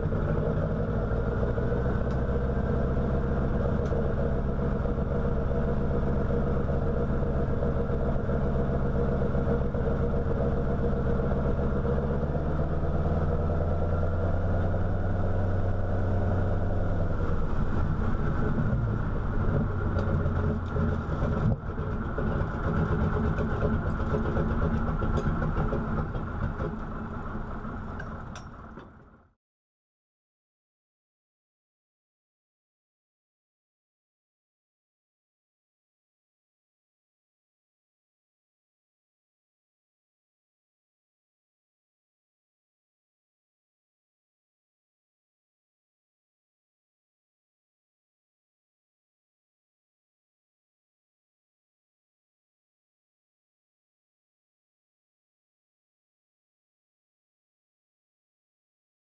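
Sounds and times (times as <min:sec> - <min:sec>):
radial aircraft engine running: 0:00.0 - 0:29.3.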